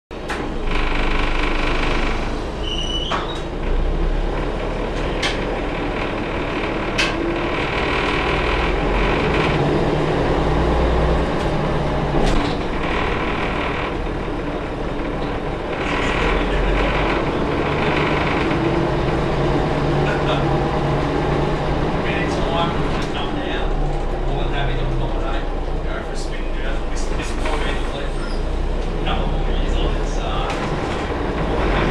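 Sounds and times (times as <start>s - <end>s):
bus diesel engine running: 0.1s - 31.9s.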